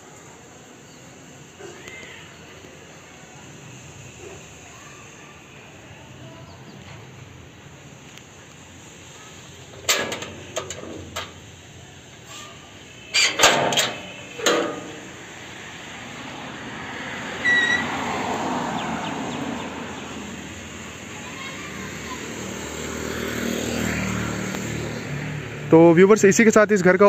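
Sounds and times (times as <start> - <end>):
street traffic hiss: 0.0 - 27.0
metal gate knocking and clanking: 9.8 - 11.4, 13.2 - 15.1
short high beep: 17.4 - 17.9.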